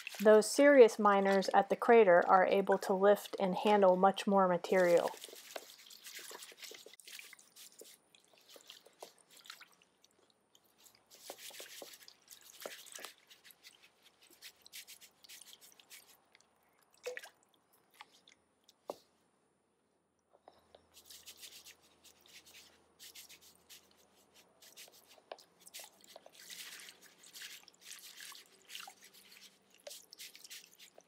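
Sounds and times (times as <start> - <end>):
wet gravel shifting on mesh: 0.0 - 0.5, 4.7 - 9.8, 10.7 - 16.3, 21.0 - 31.0
water swishing in a sieve: 0.0 - 2.2, 2.8 - 18.4, 20.9 - 31.0
small clicks and ticks of grit: 5.0 - 16.5, 20.4 - 31.0.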